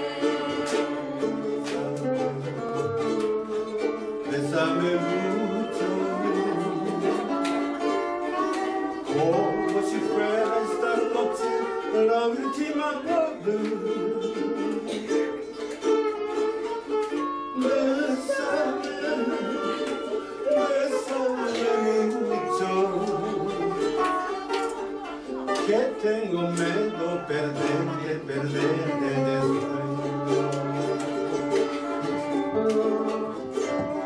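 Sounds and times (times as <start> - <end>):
voices singing into a microphone: 0.0 - 1.5, 4.3 - 7.4, 17.6 - 24.0
ukuleles strumming: 0.0 - 34.0.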